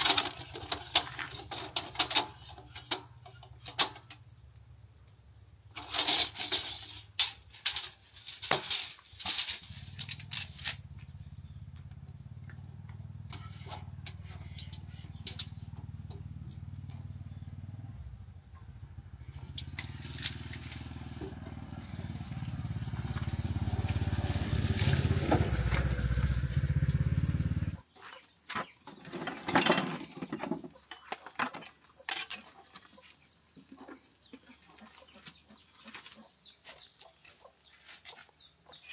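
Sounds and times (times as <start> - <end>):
plastic drums clicking and knocking: 0.0 - 4.2.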